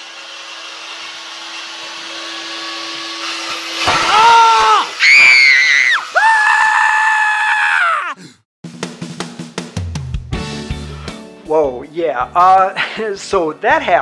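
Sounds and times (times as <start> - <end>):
circular saw cutting plywood: 0.0 - 6.7
wood splitting: 3.2 - 6.4.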